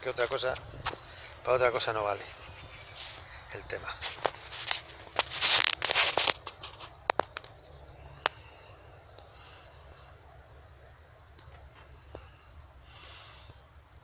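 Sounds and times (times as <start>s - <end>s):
dry stems crackling: 0.0s - 10.0s
footsteps through dry grass: 2.2s - 7.8s
breathy hiss on microphone: 7.9s - 10.6s, 11.8s - 13.8s.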